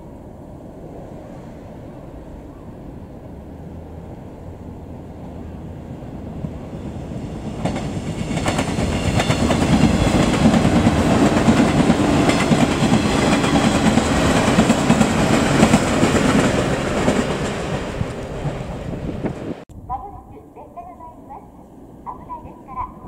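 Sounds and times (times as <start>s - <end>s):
electric train passing: 0.0s - 23.0s
wheels clacking over rail joints: 7.2s - 19.6s.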